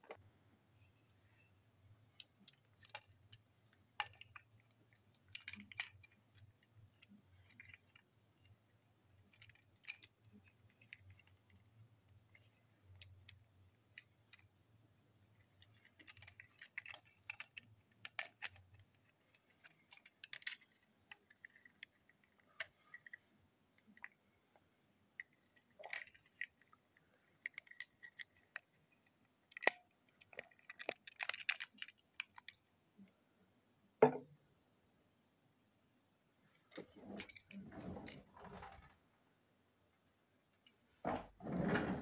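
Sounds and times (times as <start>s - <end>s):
small plastic clicks and scrapes: 2.0s - 24.6s, 25.2s - 32.6s.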